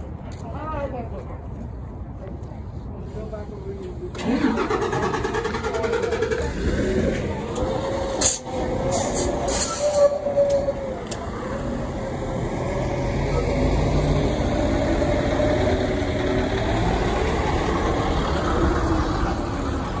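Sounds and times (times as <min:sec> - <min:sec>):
bus engine pulling away: 0:04.1 - 0:20.0.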